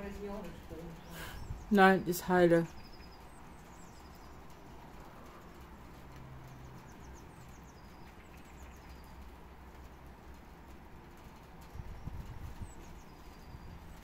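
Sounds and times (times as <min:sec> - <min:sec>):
songbirds chirping: 0:00.0 - 0:14.0
steady low rumble: 0:00.0 - 0:14.0.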